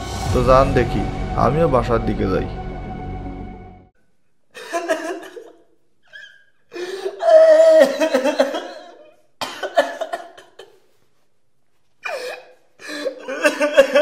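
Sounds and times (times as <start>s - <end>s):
person sobbing: 6.1s - 9.1s, 12.0s - 14.0s.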